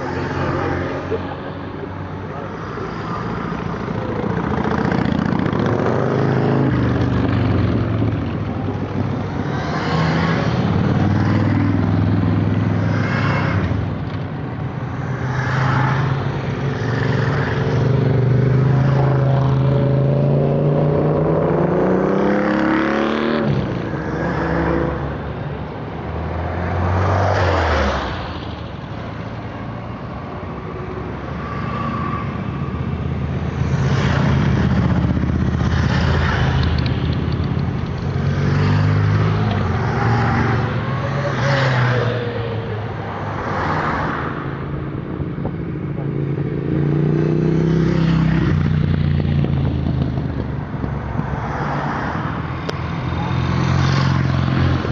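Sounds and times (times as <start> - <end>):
motorcycles riding past: 0.0 - 25.2.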